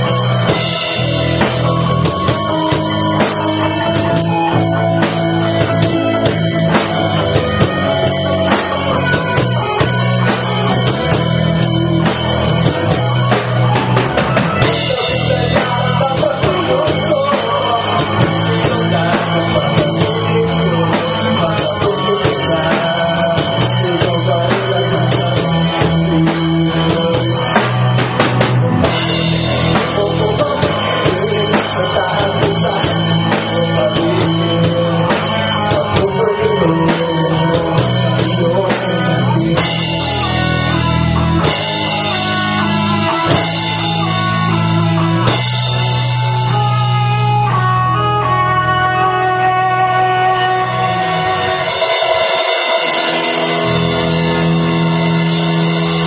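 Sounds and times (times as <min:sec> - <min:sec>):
man singing: 0:00.0 - 0:12.0, 0:14.5 - 0:42.4
bass guitar: 0:00.0 - 0:56.0
drum kit: 0:00.0 - 0:56.0
electric guitar: 0:00.0 - 0:56.0.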